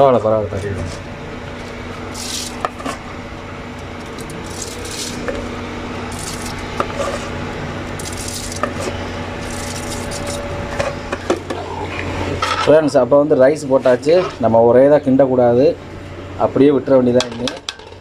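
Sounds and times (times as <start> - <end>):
low hum: 0.4 - 17.1
rice pouring into water hissing: 2.1 - 2.6, 4.1 - 7.3, 7.9 - 10.4.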